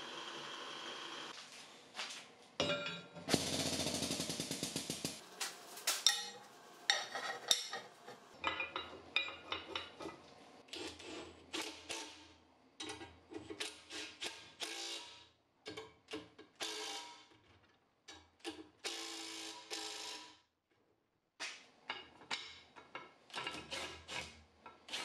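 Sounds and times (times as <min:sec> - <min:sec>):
metal clinking and knocking: 0:02.6 - 0:03.4, 0:04.4 - 0:10.0
rapid rattling strikes: 0:03.3 - 0:06.1.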